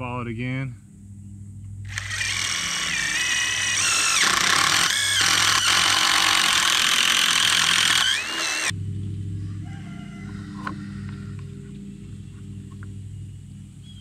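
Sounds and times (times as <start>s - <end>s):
cordless drill boring into wood: 1.9s - 8.7s.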